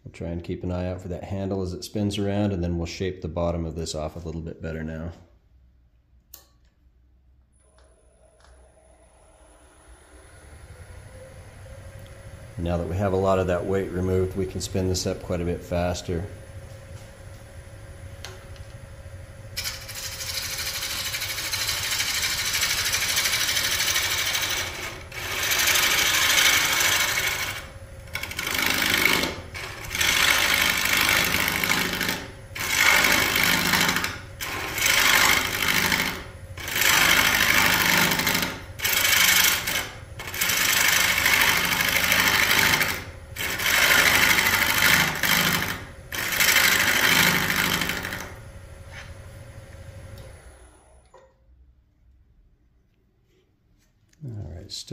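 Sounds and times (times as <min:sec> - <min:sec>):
lathe tool chattering on wood: 0:19.6 - 0:48.3.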